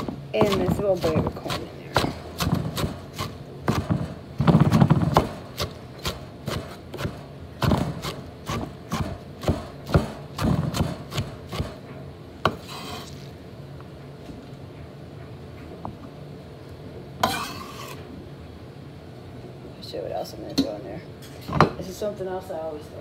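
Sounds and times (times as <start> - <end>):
knife chopping on wooden board: 0.0 - 11.8.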